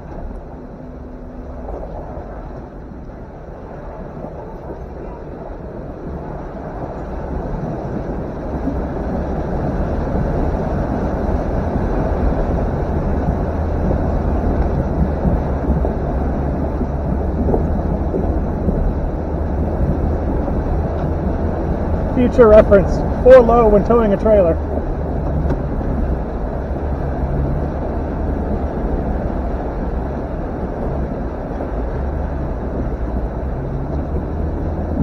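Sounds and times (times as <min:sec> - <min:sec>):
vehicle engine rumbling: 0:00.0 - 0:35.0
water rushing and churning: 0:00.0 - 0:35.0.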